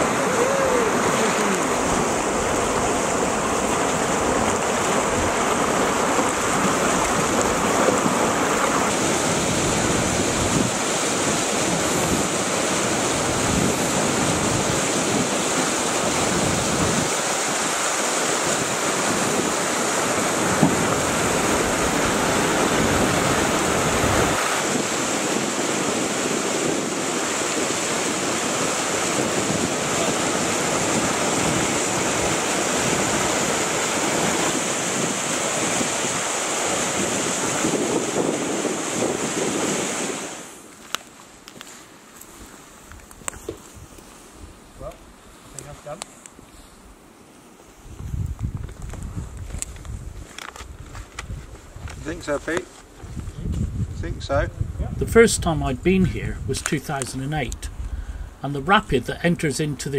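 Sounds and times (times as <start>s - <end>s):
river rapid rushing: 0.0s - 42.9s.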